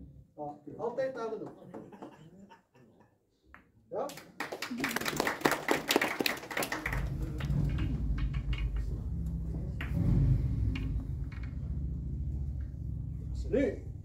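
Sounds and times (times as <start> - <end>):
audience applause: 4.4 - 8.3
low steady rumble: 6.8 - 14.0.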